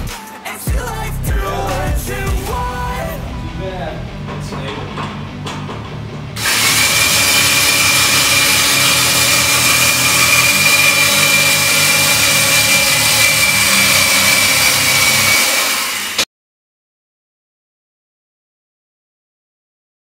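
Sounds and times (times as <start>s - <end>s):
electric winch motor whining: 6.4s - 16.3s.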